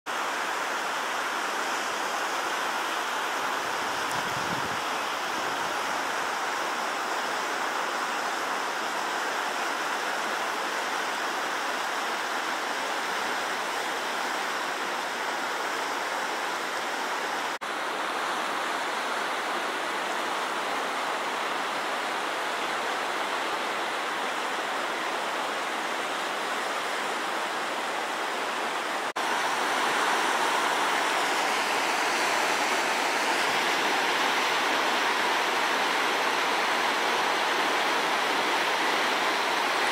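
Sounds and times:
river rushing over rapids: 0.1s - 39.9s.

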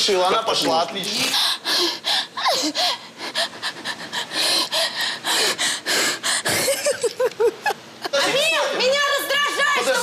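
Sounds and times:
woman whimpering: 1.7s - 4.7s.

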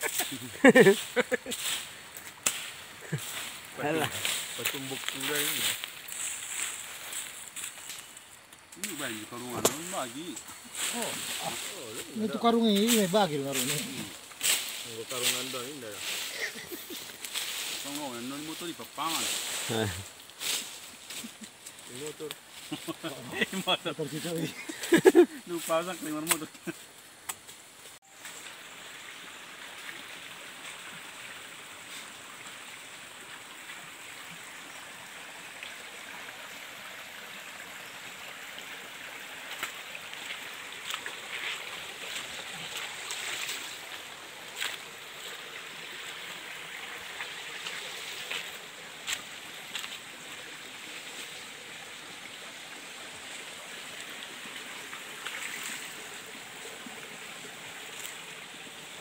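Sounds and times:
stream running over rocks: 0.0s - 59.0s.

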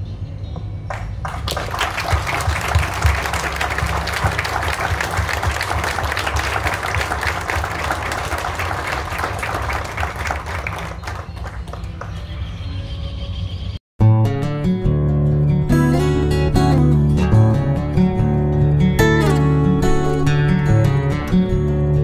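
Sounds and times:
crowd applauding: 0.9s - 12.4s.

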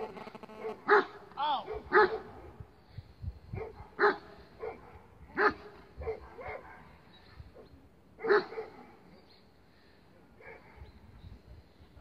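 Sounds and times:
dog barking: 0.6s - 2.5s, 3.5s - 6.9s, 8.2s - 9.0s, 10.4s - 10.8s.

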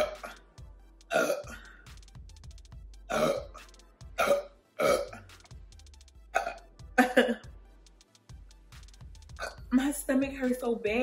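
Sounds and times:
woman burping: 0.0s - 0.4s, 1.1s - 1.6s, 3.1s - 3.6s, 4.2s - 5.2s, 6.4s - 7.4s, 9.4s - 9.7s.

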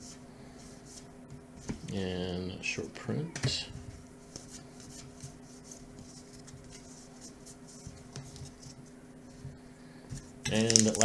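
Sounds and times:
faint steady hum: 0.0s - 11.0s
cards scratching and sliding: 4.3s - 8.8s.

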